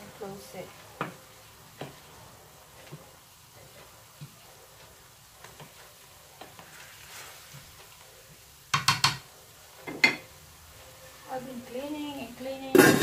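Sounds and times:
meat sizzling in skillet: 0.0s - 13.0s
wooden spoon scraping pan: 5.4s - 7.8s
utensil knocking on pan: 8.7s - 10.3s.

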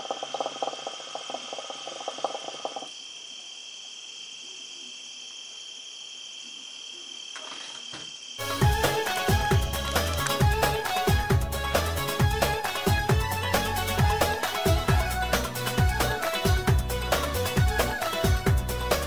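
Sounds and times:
crickets chirping: 0.0s - 11.3s.

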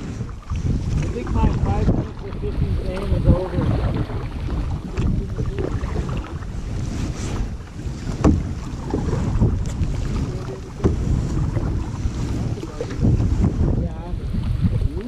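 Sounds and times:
wind rumbling on microphone: 0.0s - 15.0s
sharp knocks: 8.2s - 8.5s.

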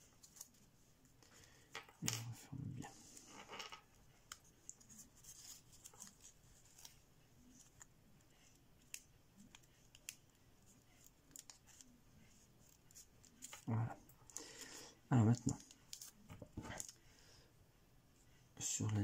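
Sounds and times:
paper crinkling and clicking: 3.2s - 14.6s, 15.3s - 17.0s.

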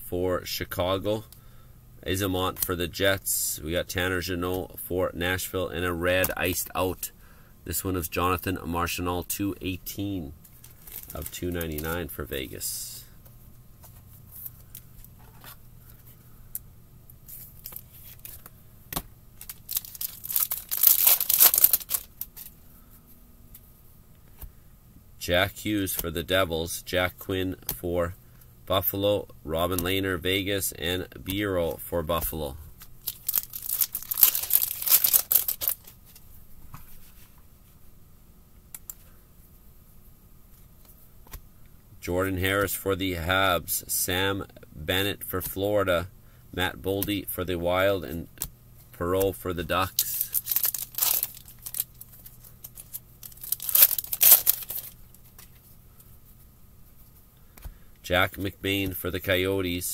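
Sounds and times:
foil pack ripping open: 19.4s - 22.3s, 33.0s - 36.0s, 50.0s - 55.0s
faint clicks of cards handled: 54.7s - 57.8s.

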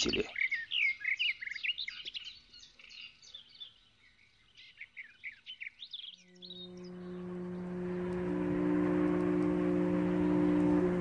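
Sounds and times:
small birds chirping: 0.0s - 8.4s
low held chord: 6.3s - 11.0s.

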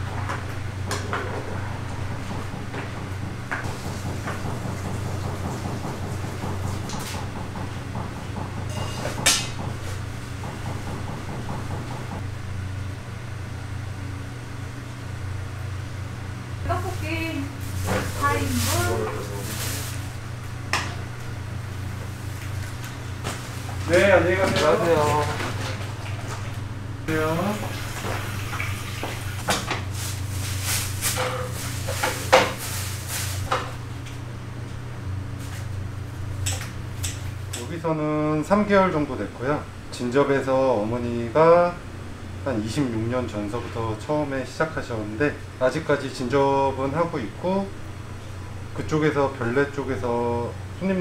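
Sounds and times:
low mechanical hum: 0.0s - 51.0s
objects knocking and clattering: 0.3s - 9.8s.

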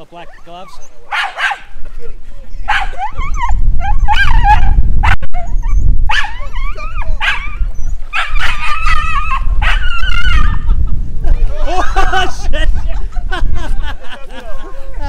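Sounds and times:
small dog yelping and whining: 0.2s - 1.6s, 2.6s - 10.7s.

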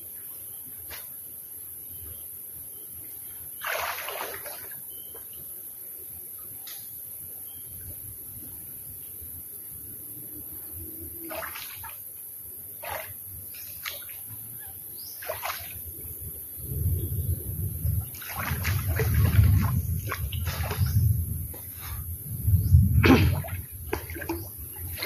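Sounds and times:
floodwater splashing and sloshing: 3.6s - 4.8s, 11.2s - 12.1s, 12.8s - 16.1s, 17.9s - 22.1s, 22.8s - 25.0s
low rumble: 16.6s - 24.0s.

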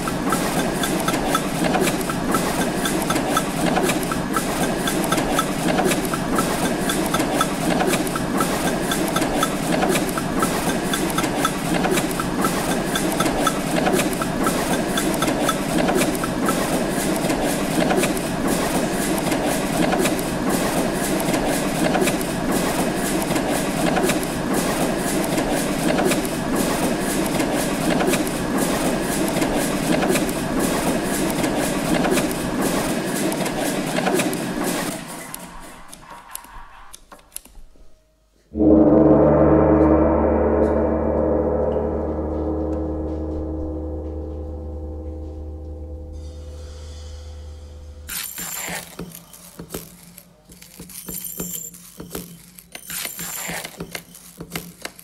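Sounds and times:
faint pulsing high tone: 38.6s - 46.8s.

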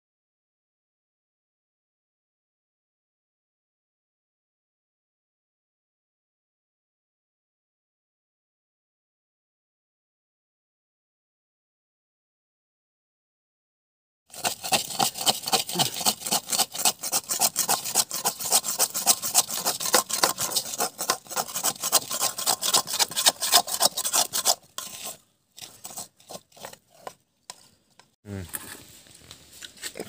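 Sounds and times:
metal spatula scraping a wok: 14.4s - 29.0s.

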